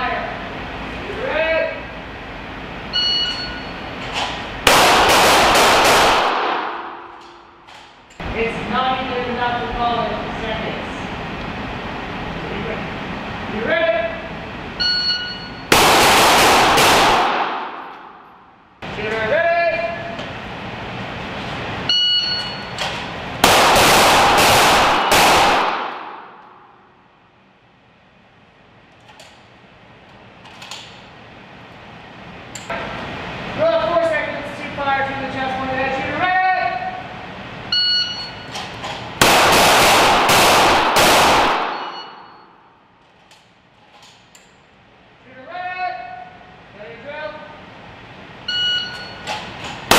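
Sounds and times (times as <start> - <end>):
shot timer beep: 2.9 - 3.8, 14.8 - 15.7, 21.9 - 22.7, 37.7 - 38.5, 41.7 - 42.6, 48.5 - 49.2
pistol shots echoing indoors: 4.6 - 7.9, 15.7 - 18.6, 23.4 - 27.0, 39.1 - 42.8.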